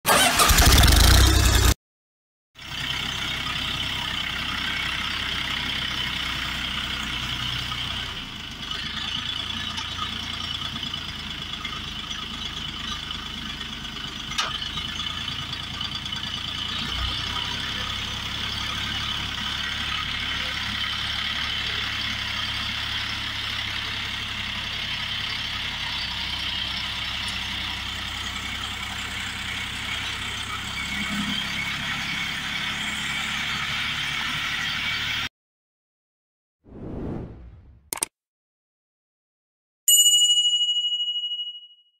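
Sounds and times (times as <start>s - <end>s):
tractor engine running: 0.1s - 1.8s, 2.6s - 35.3s
loud intro sound: 36.7s - 37.9s
sharp click: 37.9s - 38.1s.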